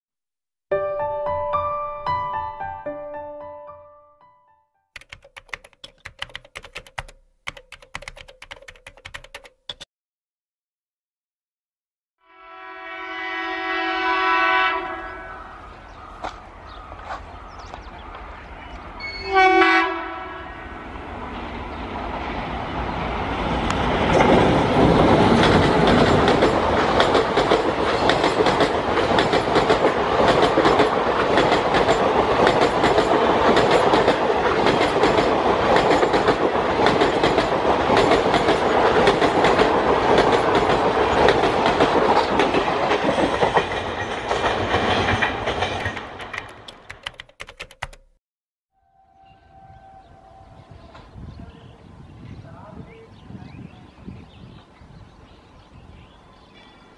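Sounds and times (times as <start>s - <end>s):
locomotive horn blast: 12.2s - 15.6s, 19.0s - 20.8s
train passing at speed: 14.6s - 46.2s.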